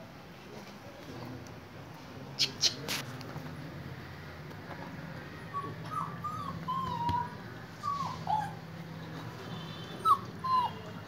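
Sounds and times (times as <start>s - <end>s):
dog whining: 5.5s - 8.7s, 10.0s - 10.9s.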